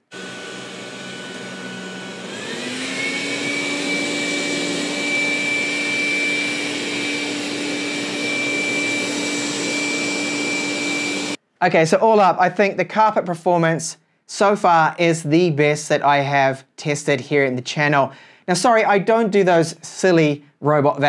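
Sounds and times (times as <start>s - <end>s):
robot vacuum fan whine: 0.0s - 11.4s.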